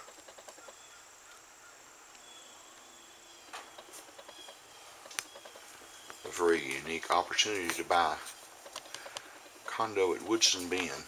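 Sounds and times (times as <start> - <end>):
steady low hiss: 0.0 - 11.0
soft clicks: 5.1 - 5.3.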